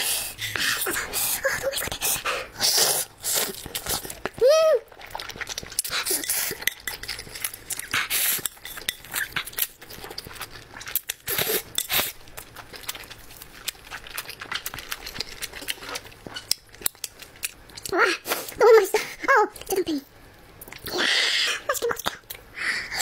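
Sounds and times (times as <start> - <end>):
slurping noodles: 0.0 - 9.6
wet chewing: 0.3 - 18.6.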